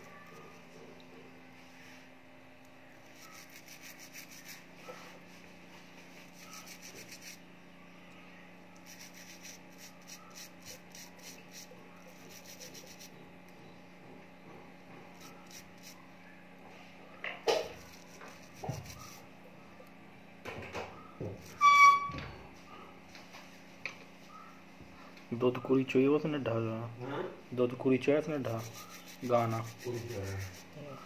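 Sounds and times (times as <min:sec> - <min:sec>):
rubbing strokes on small metal part: 0:03.0 - 0:04.7, 0:06.2 - 0:07.4, 0:08.8 - 0:13.2, 0:15.1 - 0:16.0, 0:17.7 - 0:19.2, 0:28.3 - 0:31.0.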